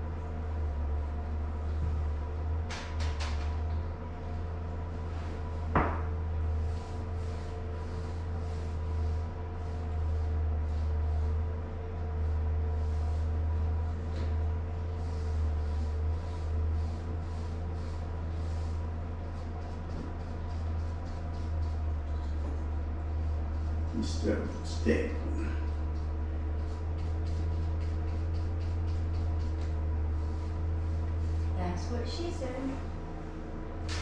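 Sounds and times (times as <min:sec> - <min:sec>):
steady low hum: 0:00.0 - 0:34.0
brush and knife swishing on wall: 0:06.4 - 0:25.0, 0:25.6 - 0:31.9.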